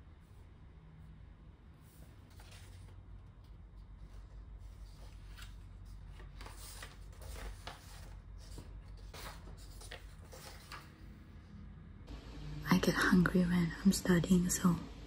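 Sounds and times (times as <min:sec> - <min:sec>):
low room hum: 0:00.0 - 0:15.0
rustling and handling noises: 0:01.8 - 0:11.0.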